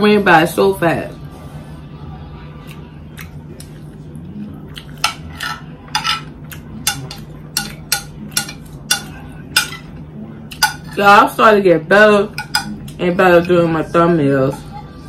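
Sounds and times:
metal spoon scraping plate: 5.0s - 9.9s.

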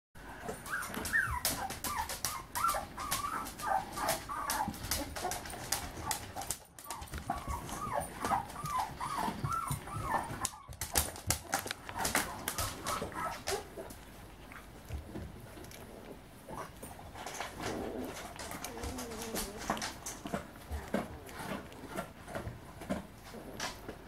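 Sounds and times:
puppy squeaking and whimpering: 0.5s - 5.3s, 6.9s - 10.8s, 11.9s - 13.8s.

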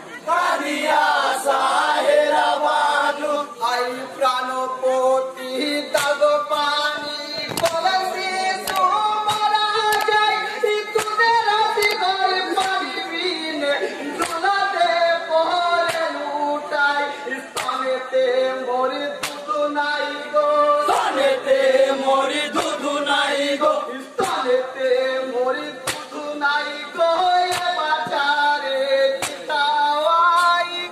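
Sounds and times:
group singing: 0.0s - 30.9s
lead voice singing: 0.0s - 30.9s
sharp percussive hits: 19.2s - 19.5s, 25.8s - 26.2s.

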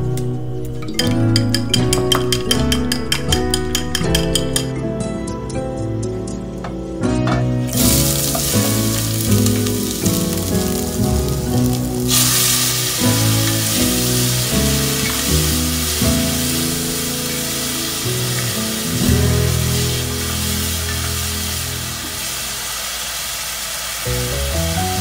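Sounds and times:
food sizzling in a pot: 7.7s - 25.0s.

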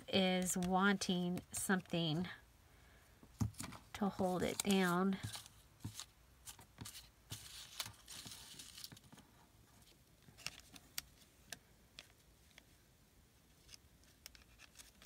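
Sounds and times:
paper rustling: 3.5s - 9.2s.

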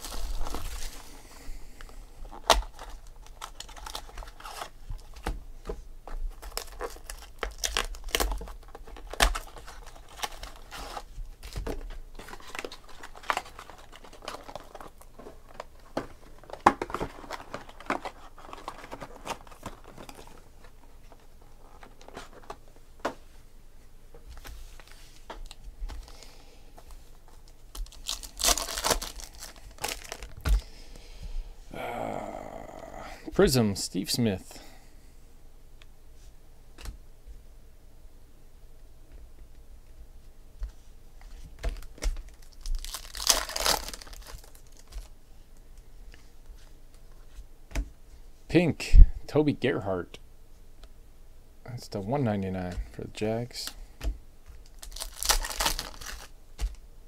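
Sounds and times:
plastic wrappers crinkling and tearing: 0.0s - 1.2s, 1.8s - 5.3s, 6.1s - 22.6s, 24.8s - 30.6s, 41.6s - 45.8s, 54.4s - 56.8s
sharp crackles of handled cards: 41.2s - 45.2s, 53.6s - 56.8s.

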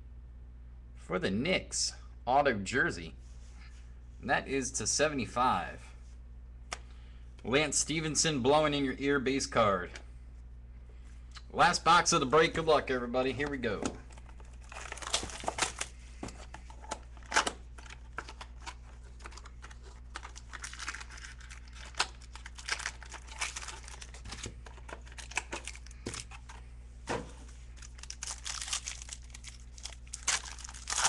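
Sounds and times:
steady low hum: 0.0s - 31.0s
foil wrapper crinkling and tearing: 14.1s - 15.9s, 16.8s - 26.4s, 27.5s - 31.0s.

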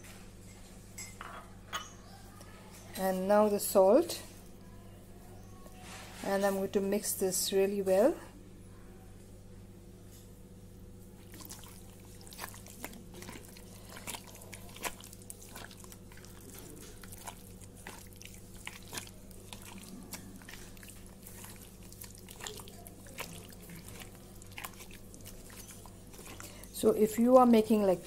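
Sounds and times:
hand kneading wet meat: 11.0s - 28.0s.

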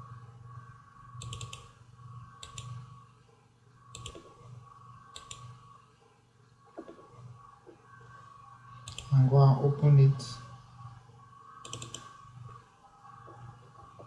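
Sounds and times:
faint electrical hum: 0.0s - 14.0s
computer mouse clicking: 1.2s - 3.0s, 3.9s - 5.7s, 8.8s - 9.2s, 11.6s - 12.4s.

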